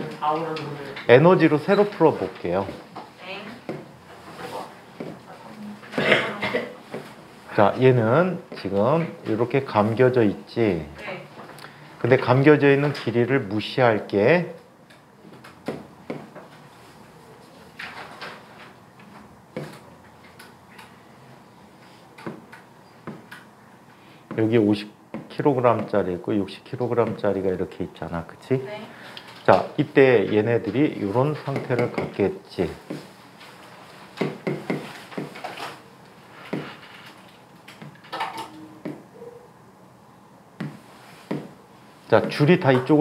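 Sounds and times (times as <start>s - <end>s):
pen tapping while writing: 31.5s - 32.2s, 34.2s - 35.4s, 40.6s - 41.5s.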